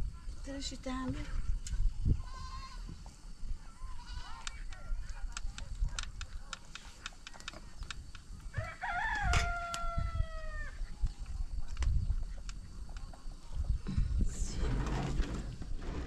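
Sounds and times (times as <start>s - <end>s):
rooster crowing: 8.5s - 10.8s.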